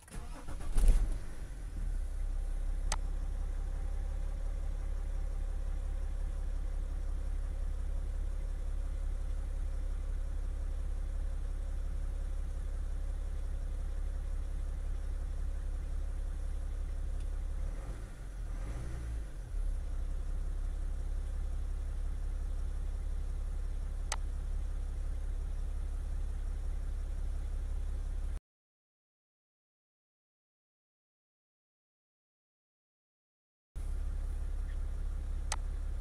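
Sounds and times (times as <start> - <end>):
diesel engine idling: 0.1 - 18.0, 33.8 - 36.0.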